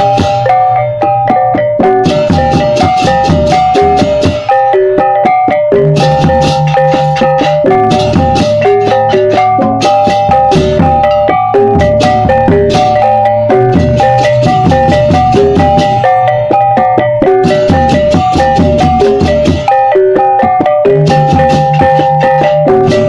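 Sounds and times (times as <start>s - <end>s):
mallet percussion music: 0.0s - 23.0s
low bass: 5.8s - 19.4s.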